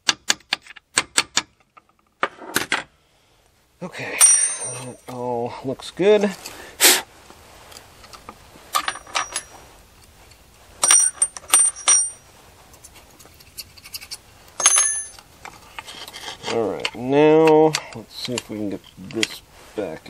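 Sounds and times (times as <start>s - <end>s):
person speaking: 3.8s - 6.4s, 16.4s - 20.0s
steel parts clicking and clinking: 4.2s - 5.2s, 7.7s - 12.2s, 13.3s - 19.4s.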